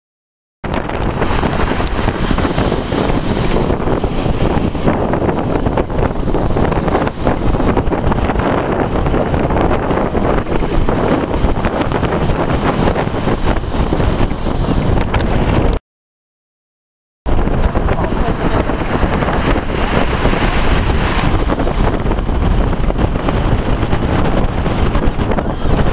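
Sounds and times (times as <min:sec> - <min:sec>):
wind blowing across microphone: 0:00.6 - 0:15.8, 0:17.3 - 0:25.9.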